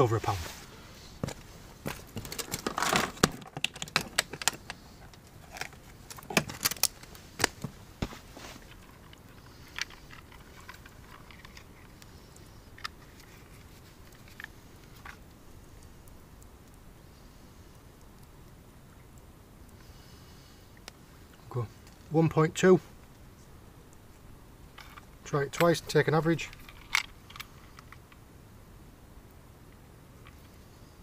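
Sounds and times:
fishing gear clicks and rattles: 1.9s - 7.6s, 8.6s - 15.3s, 24.8s - 28.2s.

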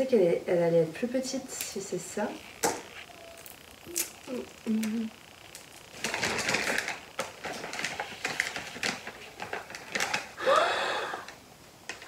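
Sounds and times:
paper sleeve crinkling: 5.6s - 10.4s.

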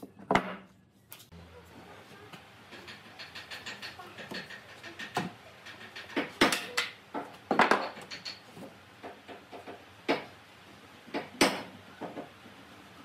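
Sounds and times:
wooden pieces knocking on workbench: 6.1s - 8.2s.

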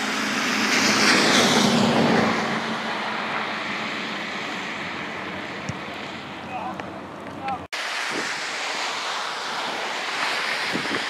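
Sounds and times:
vehicle tyres hissing on wet road: 0.0s - 7.1s, 7.7s - 11.0s.

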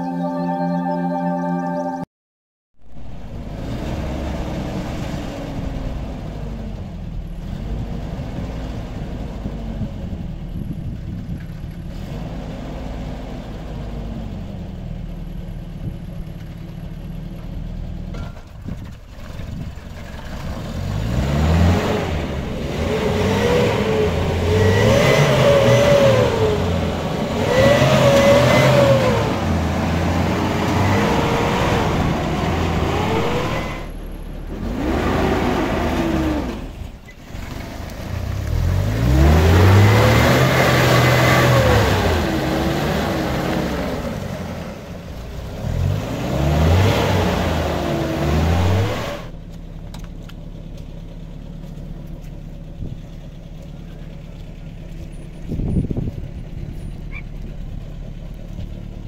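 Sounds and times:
engine revving: 2.8s - 15.4s, 19.3s - 50.1s.

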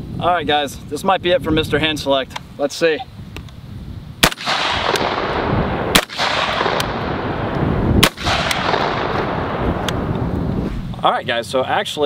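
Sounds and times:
shotgun shots: 4.2s - 9.9s
steady rushing noise: 4.2s - 12.0s.

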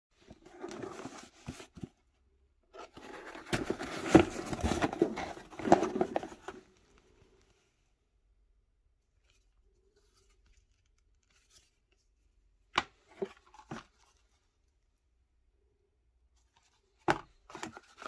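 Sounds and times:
cardboard box rustling: 0.2s - 2.1s, 2.8s - 6.8s.

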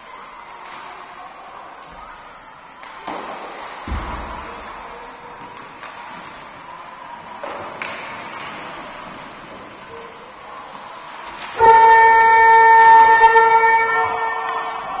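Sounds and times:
skates and sticks on ice: 0.4s - 15.0s
thud against rink boards: 2.8s - 6.6s, 7.3s - 9.7s.

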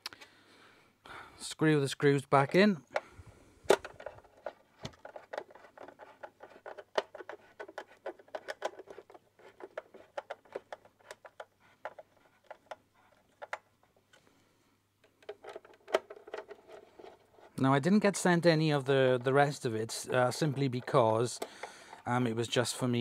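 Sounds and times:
screwdriver clicking and scraping: 3.8s - 13.6s.

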